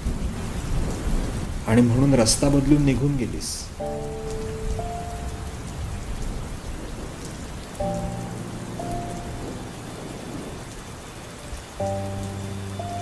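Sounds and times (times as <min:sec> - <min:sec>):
steady rain falling: 0:00.0 - 0:13.0
soft background music: 0:03.8 - 0:06.7, 0:07.7 - 0:13.0.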